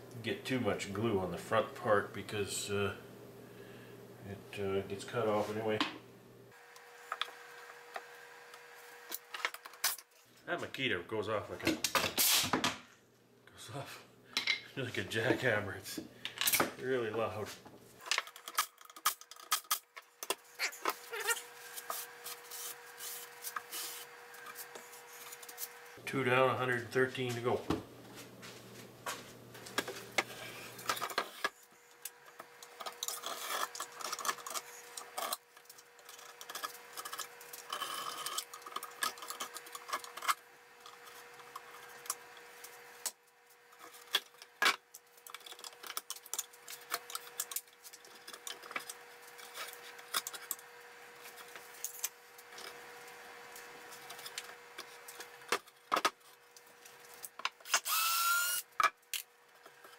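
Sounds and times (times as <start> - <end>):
faint steady hum: 0.0 - 11.9.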